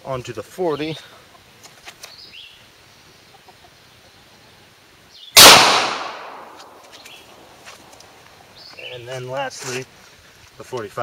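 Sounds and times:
pistol shot with echo: 5.4s - 6.8s.

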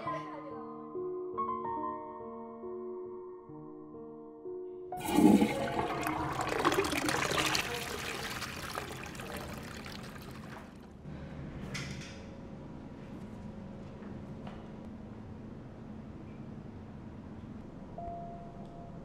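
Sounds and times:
soft piano music: 0.0s - 6.5s, 18.0s - 19.0s
cistern refilling hiss: 5.0s - 10.6s
toilet flushing: 5.0s - 10.9s.

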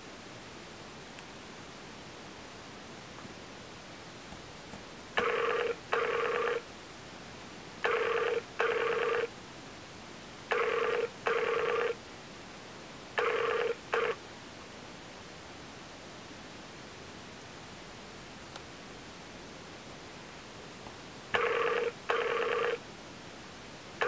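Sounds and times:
call ringing tone: 5.2s - 6.6s, 7.8s - 9.3s, 10.5s - 12.0s, 13.2s - 14.2s, 21.4s - 22.8s.

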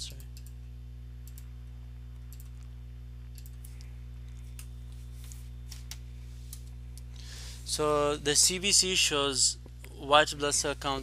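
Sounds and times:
low hum: 0.0s - 11.0s
computer mouse clicks: 2.3s - 2.7s.

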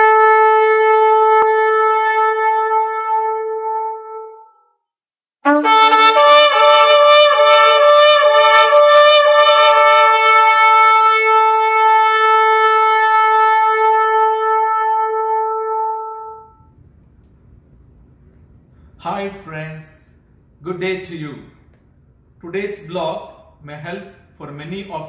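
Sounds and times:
shofar blast: 0.0s - 4.8s, 5.4s - 16.7s.

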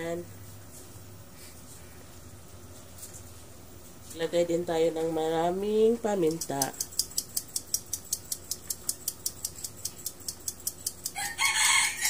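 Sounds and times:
fast high ticking: 6.3s - 11.2s
rooster crowing: 11.1s - 12.0s.

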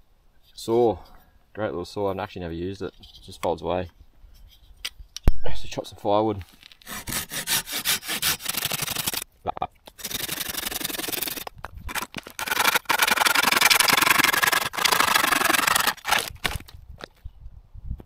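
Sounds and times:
hand saw rasping through branches: 6.8s - 9.2s, 10.0s - 16.6s.

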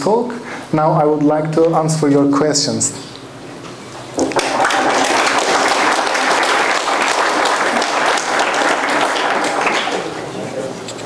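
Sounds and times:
audience applauding: 4.2s - 10.3s.

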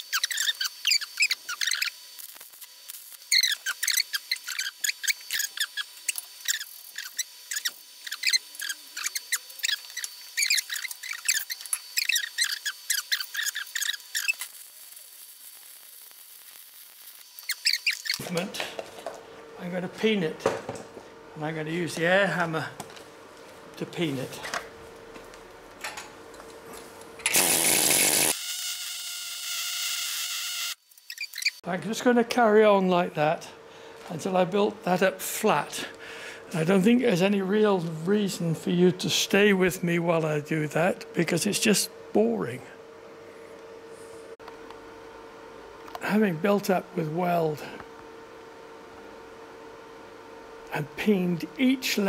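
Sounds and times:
wire brush scratching metal: 0.0s - 18.2s.

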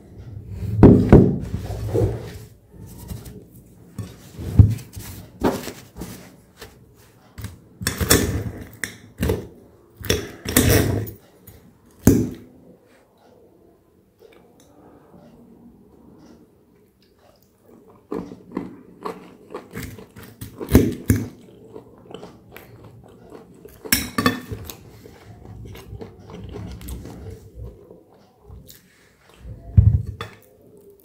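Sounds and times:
cutlery scraping and clinking on plate: 23.7s - 27.5s.

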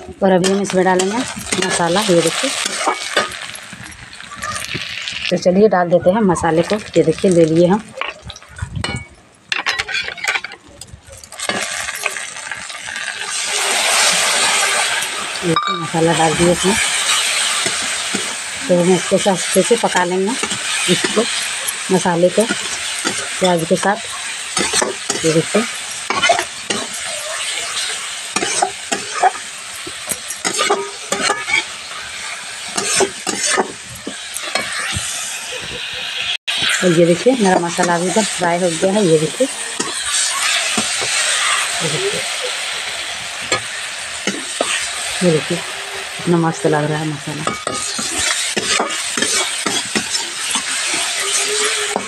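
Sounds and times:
paste sizzling in hot oil: 0.0s - 5.5s, 6.4s - 9.0s, 11.2s - 52.0s
metal spatula scraping pan: 0.3s - 4.8s, 8.0s - 42.2s, 47.2s - 52.0s
steel bowl and spoon clinking: 7.9s - 12.4s, 15.5s - 18.3s, 18.9s - 32.1s, 47.4s - 52.0s.

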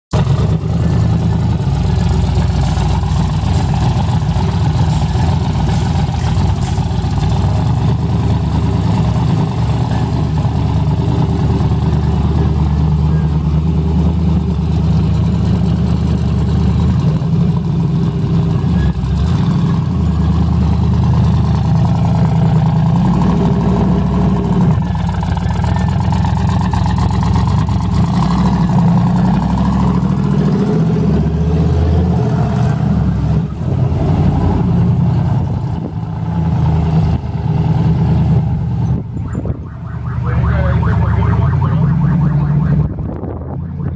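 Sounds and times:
pickup truck engine idling: 0.2s - 23.3s.

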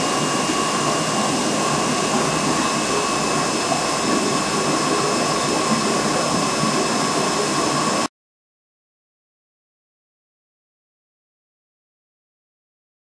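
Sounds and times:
aquarium filter water rushing: 0.0s - 8.1s.

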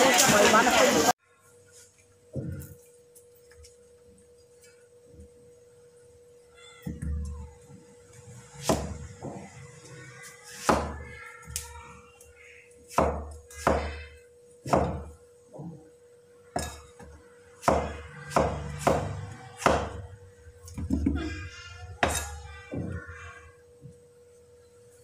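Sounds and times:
cleaver chopping on wooden board: 12.9s - 14.0s, 17.6s - 20.0s.

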